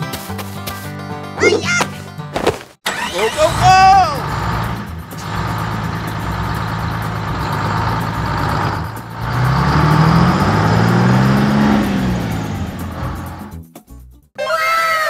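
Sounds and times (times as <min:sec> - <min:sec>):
tractor engine running: 0:02.4 - 0:13.7.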